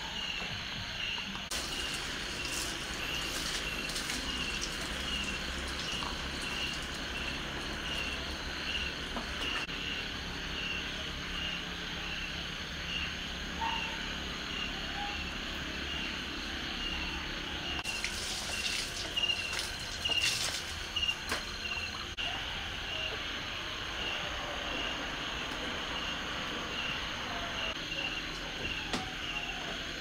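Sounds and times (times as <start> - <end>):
night insects chirping: 0.0 - 30.0
water splashes: 1.5 - 9.7, 17.8 - 22.2.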